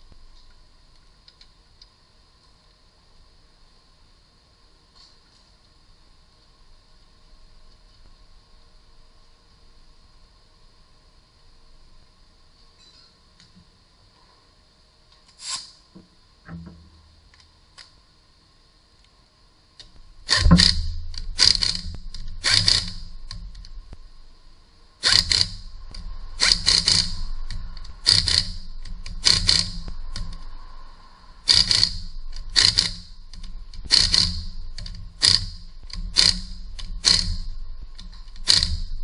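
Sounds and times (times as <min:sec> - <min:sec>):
impact wrench bursts: 0:20.2 - 0:23.6, 0:25.0 - 0:30.5, 0:31.4 - 0:39.0.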